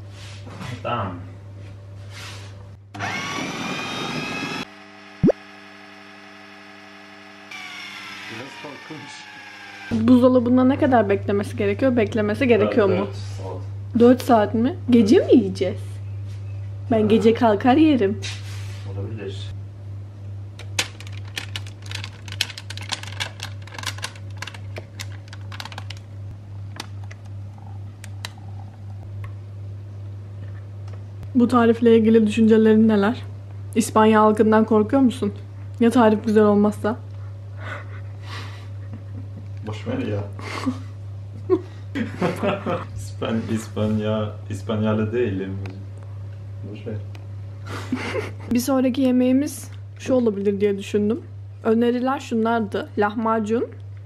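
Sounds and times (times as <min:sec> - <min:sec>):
food processor motor: 0:02.9 - 0:10.2
steady low hum: 0:04.6 - 0:54.0.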